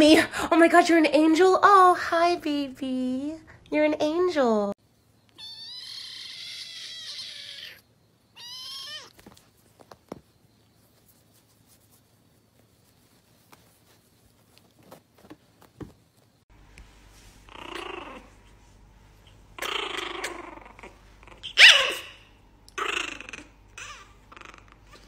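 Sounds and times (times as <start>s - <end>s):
puppy growling: 17.5s - 18.4s, 19.6s - 25.0s.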